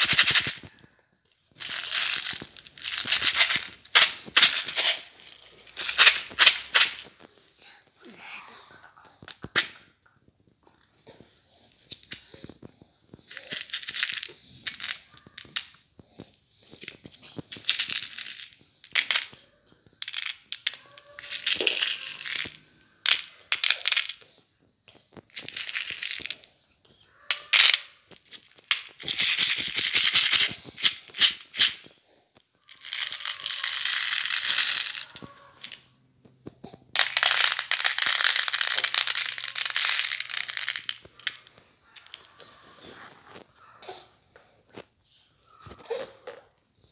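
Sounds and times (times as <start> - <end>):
candy pieces clicking on plastic: 0.0 - 5.0, 13.3 - 24.2, 32.6 - 35.9, 37.0 - 42.3
candies rattling in plastic tub: 0.0 - 7.3, 16.7 - 19.4, 20.0 - 24.2, 25.3 - 26.4, 27.3 - 31.9, 32.6 - 35.9, 37.0 - 42.3.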